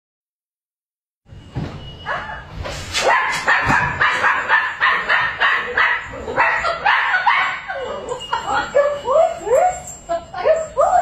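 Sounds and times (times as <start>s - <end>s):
puppy yapping: 2.1s - 8.2s.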